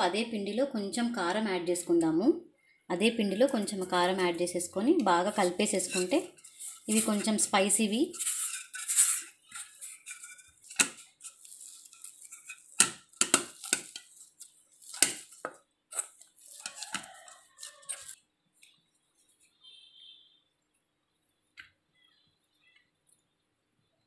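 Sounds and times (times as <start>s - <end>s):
dough knocking in a metal bowl: 12.7s - 14.0s.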